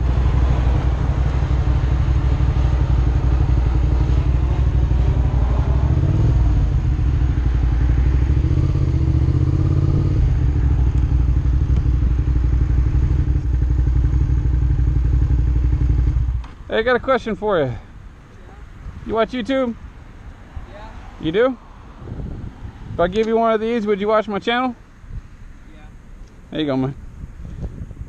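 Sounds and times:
wind rumble on microphone: 0.0s - 16.4s, 21.3s - 23.8s, 25.0s - 25.4s, 26.2s - 28.0s
motorcycle engine revving: 0.0s - 16.6s.

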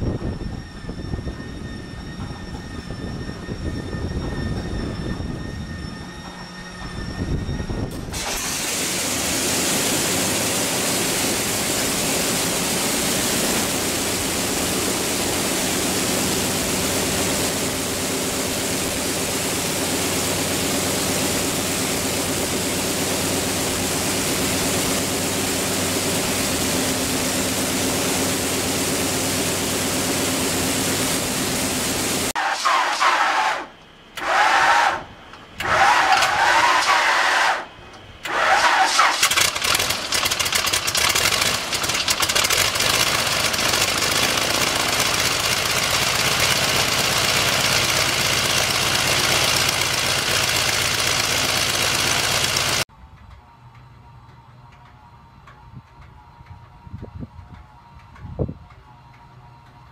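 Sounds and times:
large radial aircraft engine running: 0.0s - 59.9s
small radial engine starting: 8.0s - 52.9s.

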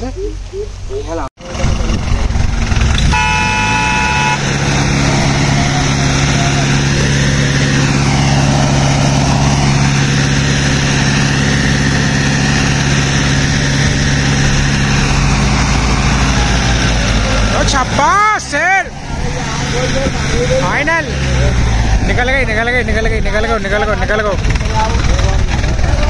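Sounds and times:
diesel tractor engine under load: 1.4s - 26.0s
horn sounding: 3.0s - 10.2s.

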